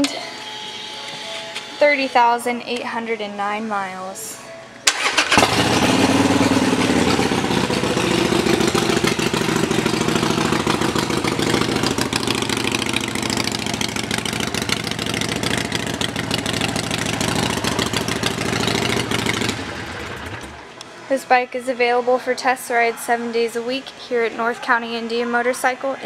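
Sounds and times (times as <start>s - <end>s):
motorcycle engine starting and idling: 4.8s - 20.8s.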